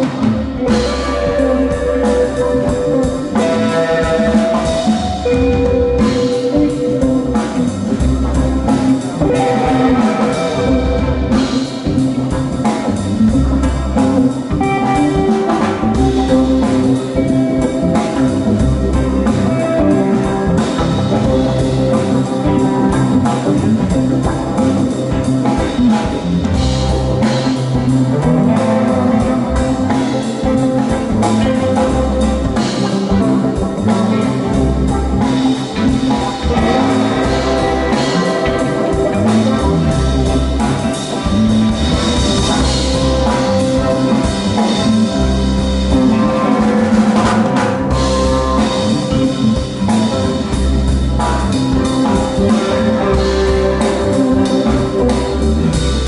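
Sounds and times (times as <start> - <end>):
live band playing: 0.0 - 56.0.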